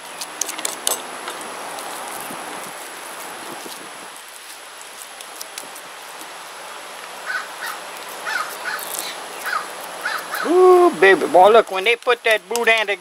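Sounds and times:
steady background hiss: 0:00.0 - 0:13.0
bird calling: 0:07.2 - 0:11.4.

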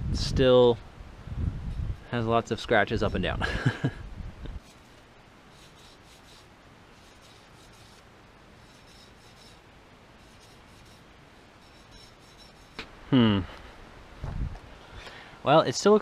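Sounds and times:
fingertips rubbing on metal: 0:04.6 - 0:08.0, 0:08.6 - 0:09.6, 0:10.2 - 0:12.8.

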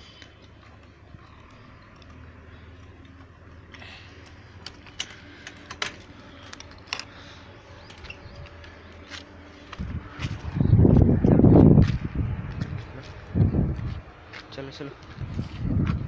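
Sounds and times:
padlock and keys clinking: 0:04.2 - 0:07.2.

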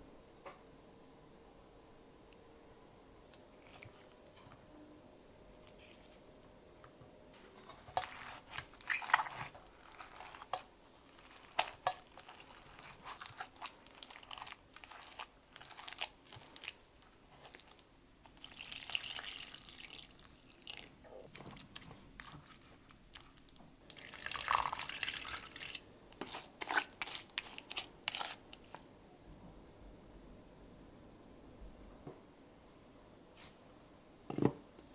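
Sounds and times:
spoon mashing fruit in strainer: 0:07.4 - 0:28.8.

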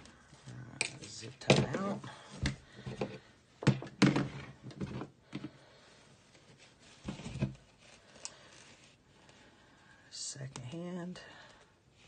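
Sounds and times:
fabric rustling: 0:05.9 - 0:09.8.

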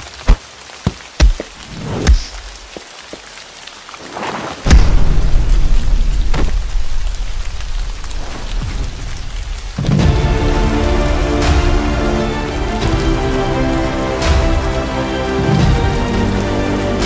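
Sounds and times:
steady rain falling: 0:00.0 - 0:17.0
thunder clap and rumble: 0:04.6 - 0:13.2.

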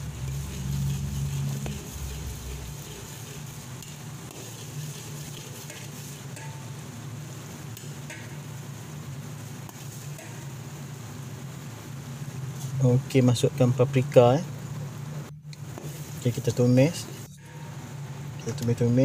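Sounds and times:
metal ladle scraping pan: 0:00.0 - 0:06.7
low hum: 0:00.0 - 0:09.6, 0:17.2 - 0:18.9
food sizzling in hot oil: 0:00.0 - 0:11.1.

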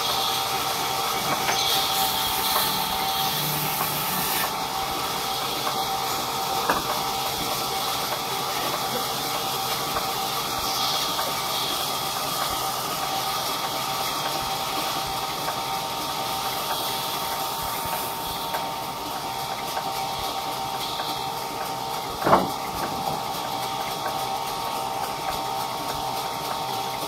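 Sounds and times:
band saw running: 0:00.0 - 0:27.0.

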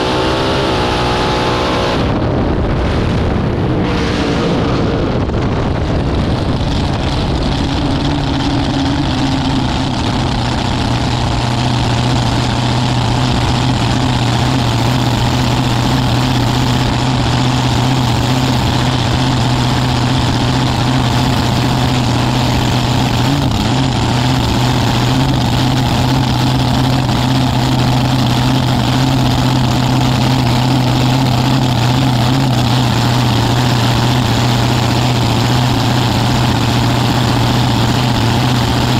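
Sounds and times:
drag racing car engine idling: 0:00.0 - 0:38.9.

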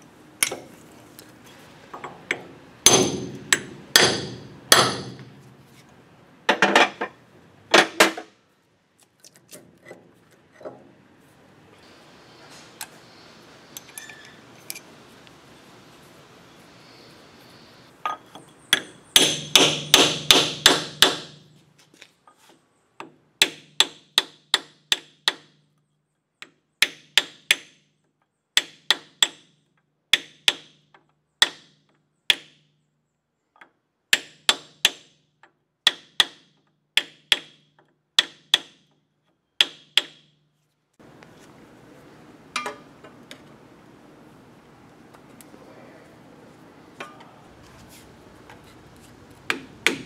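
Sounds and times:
hammer tapping metal punch: 0:02.0 - 0:05.3, 0:18.1 - 0:21.4.

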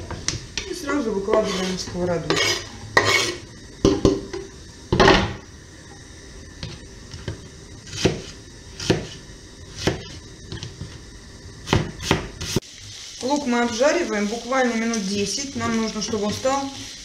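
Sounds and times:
onion scraped off cutting board: 0:01.3 - 0:03.4, 0:07.8 - 0:10.2.

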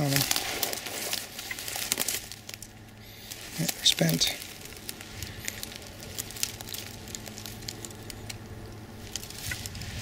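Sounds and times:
dry vegetation crackling and rustling: 0:00.0 - 0:10.0
low steady hum: 0:00.0 - 0:10.0.

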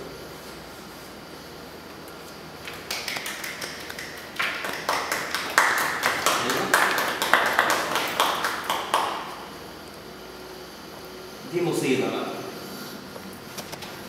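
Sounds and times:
hand clapping echoing in room: 0:02.6 - 0:09.6.

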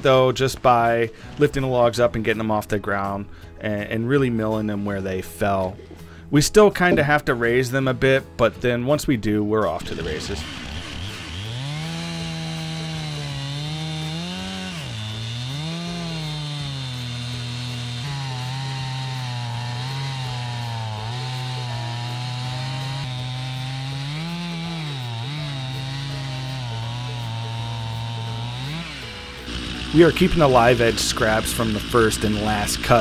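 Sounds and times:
chainsaw cutting through log: 0:09.8 - 0:33.0.

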